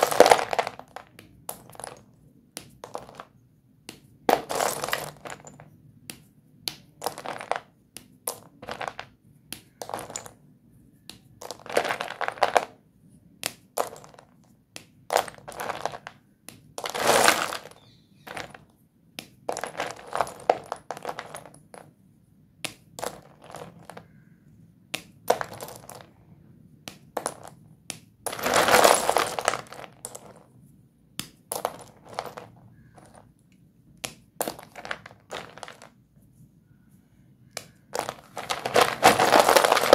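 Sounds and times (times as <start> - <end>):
chalk sticks clinking and rattling: 37.9 - 39.9.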